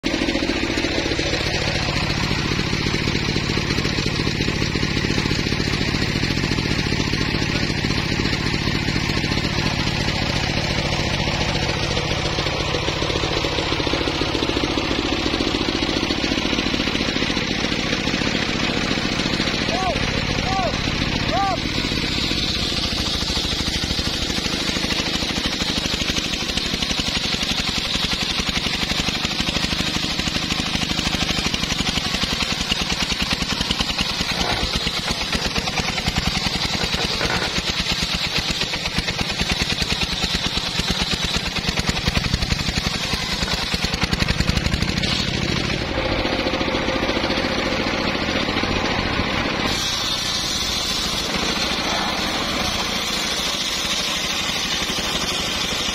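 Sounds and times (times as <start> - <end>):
circular saw ripping log: 21.8 - 45.9, 49.6 - 55.9.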